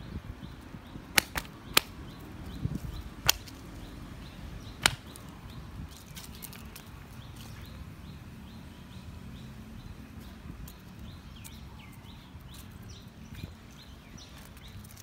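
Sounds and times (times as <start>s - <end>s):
sharp dry clicks: 1.1s - 2.0s, 3.2s - 3.6s, 4.8s - 5.3s.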